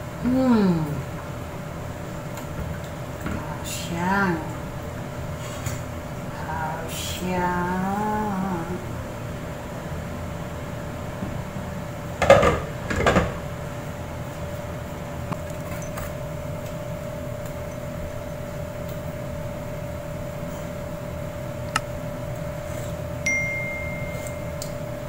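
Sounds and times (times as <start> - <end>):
steady background hum: 0.0 - 25.0.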